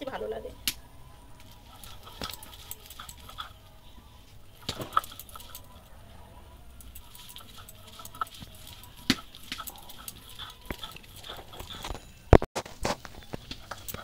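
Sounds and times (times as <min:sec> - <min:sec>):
grinding stone scraping: 0:06.9 - 0:12.2.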